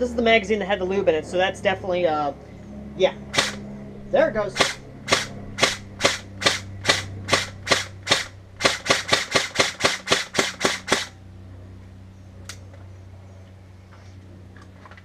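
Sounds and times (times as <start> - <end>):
airsoft rifle shots: 3.3 - 3.6, 4.5 - 11.2.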